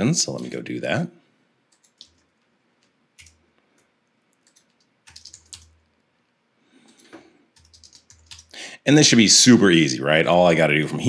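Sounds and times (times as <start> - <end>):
keyboard keystrokes: 4.4 - 5.8, 6.9 - 8.5.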